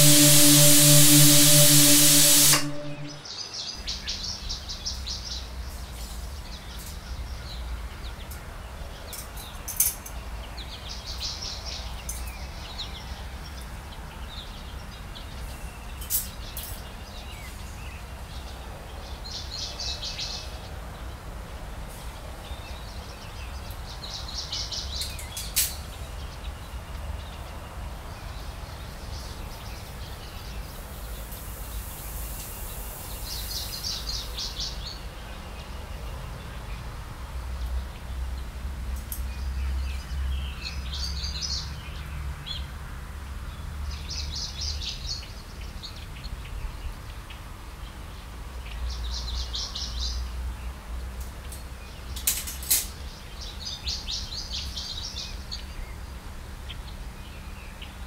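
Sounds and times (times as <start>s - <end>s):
low hum: 0.0s - 3.2s
pressure cooker whistle: 0.0s - 3.2s.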